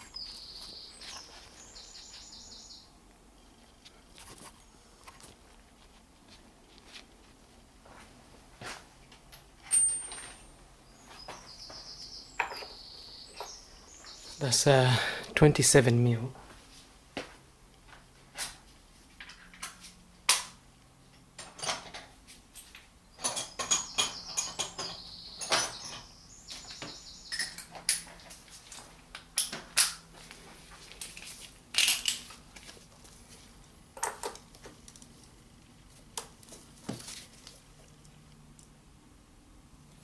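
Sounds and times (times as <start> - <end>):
metal hand tools clinking: 9.6 - 10.5.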